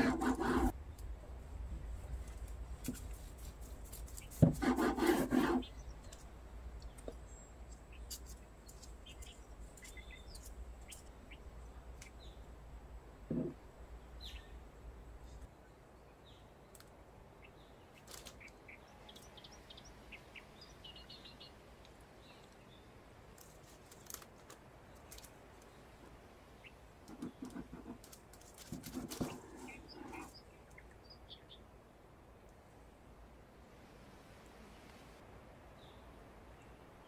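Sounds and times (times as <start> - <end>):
parchment paper rustling: 23.4 - 25.6, 27.2 - 30.3.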